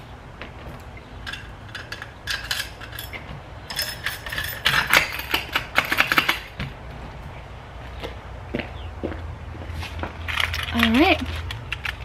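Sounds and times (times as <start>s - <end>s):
keys jingling: 1.3s - 6.5s, 10.2s - 12.0s.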